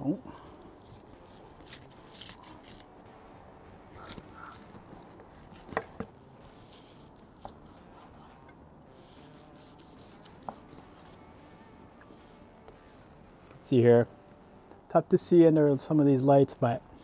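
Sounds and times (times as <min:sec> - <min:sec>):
knife scraping through meat: 0:00.1 - 0:03.0, 0:03.9 - 0:11.2.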